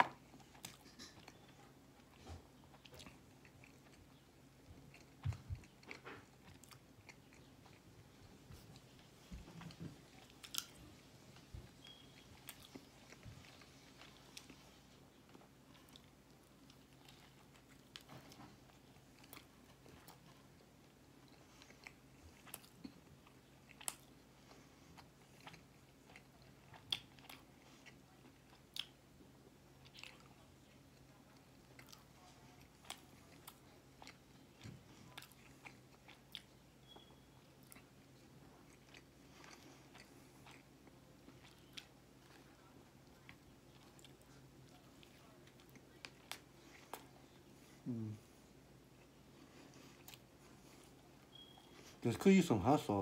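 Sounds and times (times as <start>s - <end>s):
low steady hum: 0.0s - 53.0s
chewing mouth sounds: 11.8s - 29.1s.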